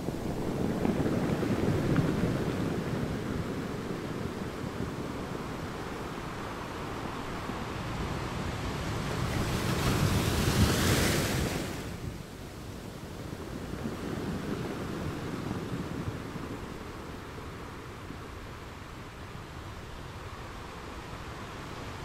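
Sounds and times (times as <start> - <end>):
surf breaking on beach: 0.0 - 12.3.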